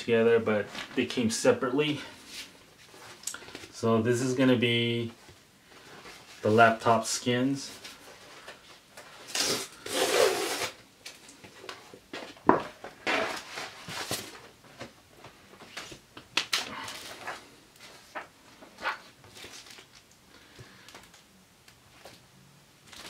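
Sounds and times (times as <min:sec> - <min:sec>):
plastic packaging rustling: 0:07.8 - 0:21.2.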